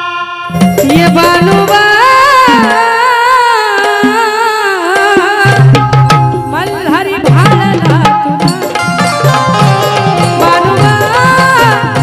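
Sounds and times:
hand drum strokes: 7.3 - 12.0
folk song melody: 8.6 - 12.0.

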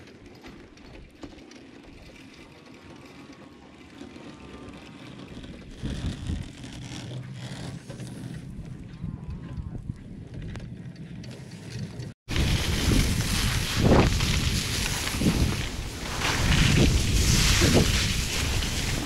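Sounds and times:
wind buffeting microphone: 8.4 - 10.8, 12.3 - 19.0.

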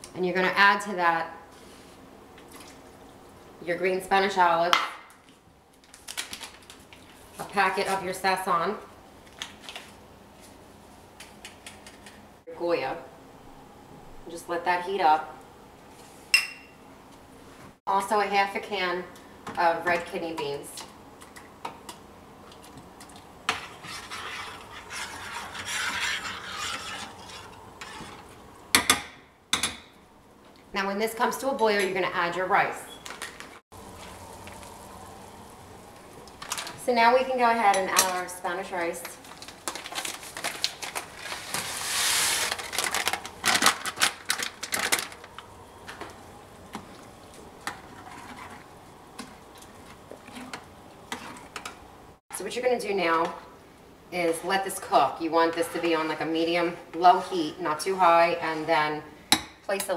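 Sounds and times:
stirring liquid in a pan: 21.2 - 28.6, 46.7 - 51.8.

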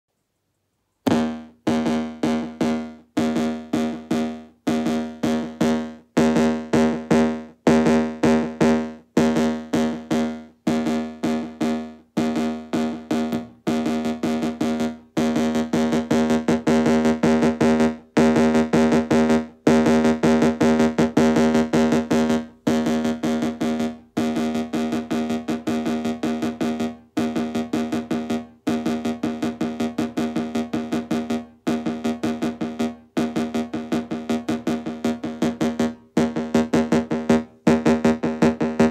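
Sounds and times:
synthesizer plucky note: 1.1 - 38.9.

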